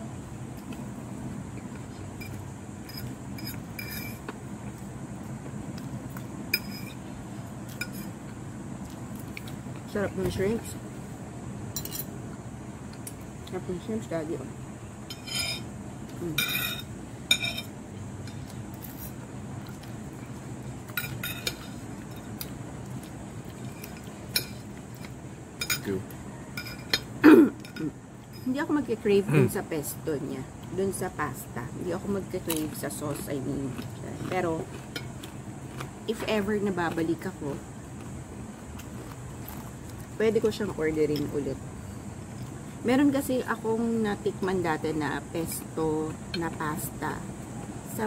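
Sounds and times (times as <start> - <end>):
low outdoor background rumble: 0.0 - 48.0
steady low hum: 0.0 - 48.0
fork clinking against a plate: 2.2 - 4.3, 6.5 - 7.0, 15.1 - 15.7, 16.3 - 17.7, 20.9 - 22.5, 23.6 - 25.9, 26.5 - 28.4.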